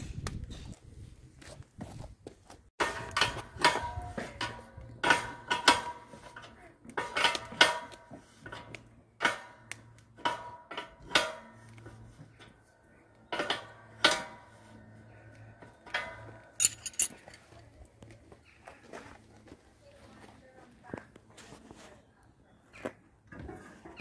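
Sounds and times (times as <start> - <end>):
spanner clinking against metal: 16.0 - 17.4.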